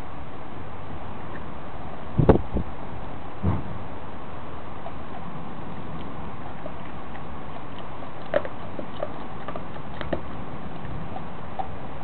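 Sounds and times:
dog chewing plush toy: 0:04.8 - 0:12.0.

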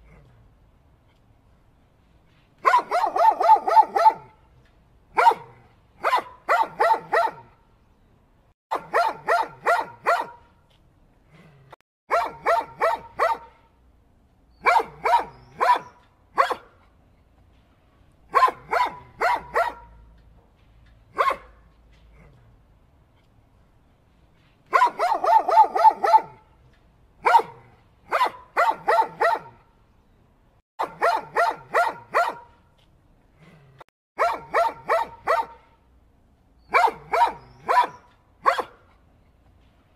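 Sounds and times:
dog barking: 0:02.6 - 0:04.4, 0:05.2 - 0:07.5, 0:08.7 - 0:10.5, 0:12.1 - 0:13.6, 0:14.6 - 0:16.7, 0:18.3 - 0:20.0, 0:21.1 - 0:21.6, 0:24.7 - 0:26.4, 0:27.2 - 0:29.6, 0:30.8 - 0:32.6, 0:34.2 - 0:35.7, 0:36.7 - 0:38.8.

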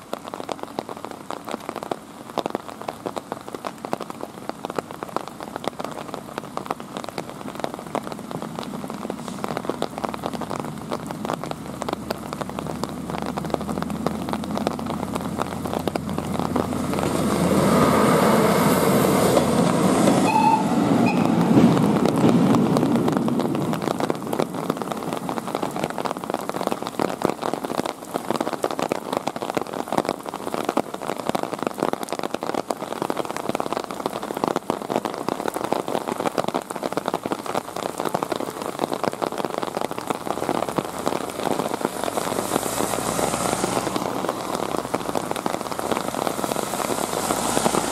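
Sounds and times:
rain pattering on road: 0:00.0 - 0:47.9
passing vehicle rushing: 0:15.7 - 0:23.2, 0:40.9 - 0:47.9.

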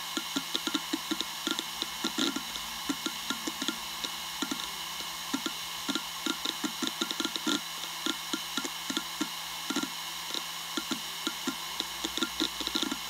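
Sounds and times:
hard drive head clicking: 0:00.0 - 0:13.0
hard drive platters whining: 0:00.0 - 0:13.0.

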